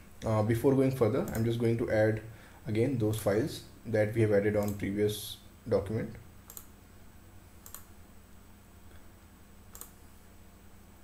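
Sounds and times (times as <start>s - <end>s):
faint low hum: 0.0s - 11.0s
computer mouse clicks: 4.6s - 4.8s, 6.5s - 6.7s, 7.6s - 7.9s, 9.7s - 10.0s.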